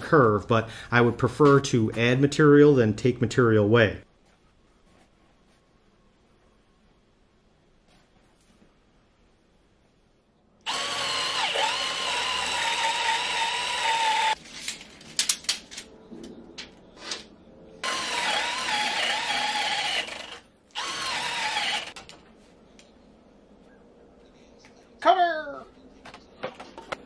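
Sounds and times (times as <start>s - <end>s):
cordless drill boring into wood: 10.6s - 14.4s, 17.8s - 22.0s.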